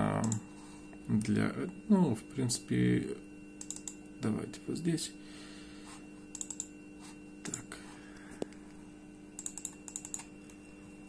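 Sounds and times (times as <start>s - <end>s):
faint steady hum: 0.0s - 11.0s
laptop keys clicking: 3.6s - 4.0s, 6.3s - 6.7s, 9.4s - 10.3s.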